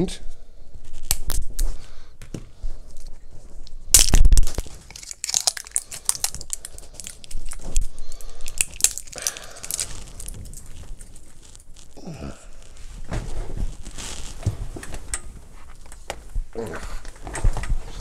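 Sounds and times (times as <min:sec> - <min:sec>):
plastic packaging crinkling: 0:03.0 - 0:16.1.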